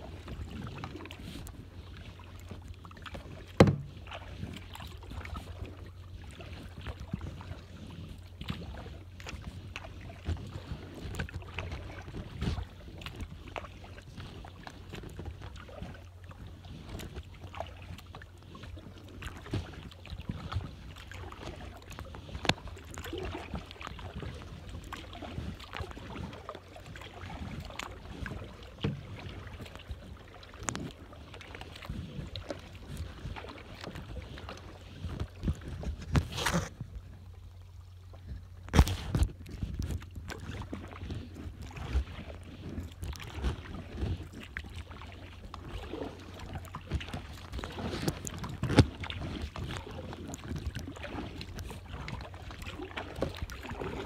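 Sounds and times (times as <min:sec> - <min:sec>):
paddle dipping and dripping: 0:00.0 - 0:54.0.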